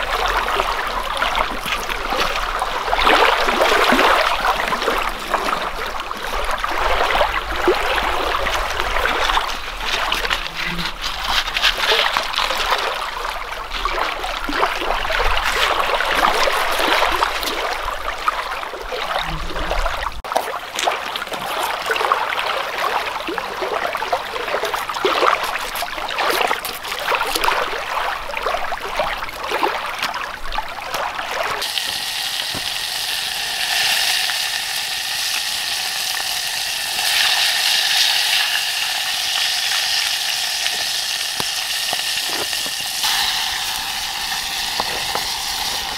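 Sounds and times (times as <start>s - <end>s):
small waves lapping on rocks: 0.0s - 45.9s
fish sizzling in a frying pan: 31.6s - 45.9s.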